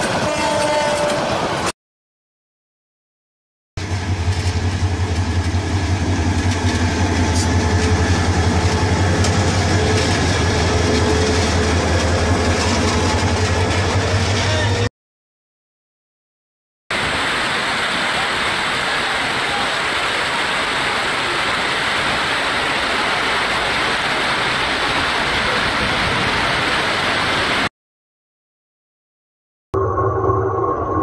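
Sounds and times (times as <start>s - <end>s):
heavy rain falling: 16.9s - 27.7s.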